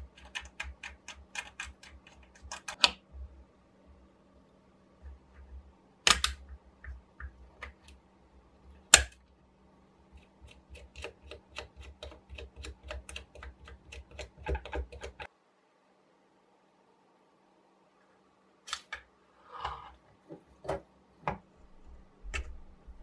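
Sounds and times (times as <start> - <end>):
nut turning light clicks: 6.1 - 6.5.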